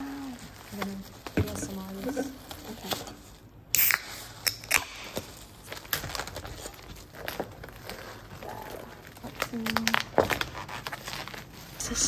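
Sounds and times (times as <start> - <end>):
plastic bag rustling: 0.0 - 3.5, 5.1 - 12.0
soda can opening hiss: 3.7 - 5.0.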